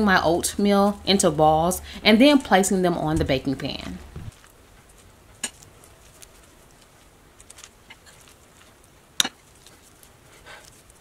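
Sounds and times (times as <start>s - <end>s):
sticky dough handling: 4.0s - 11.0s.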